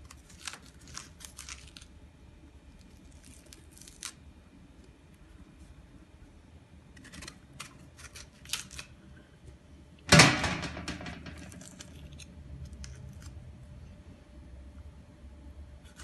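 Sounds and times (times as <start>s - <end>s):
knife cutting pomegranate rind: 15.8s - 16.0s.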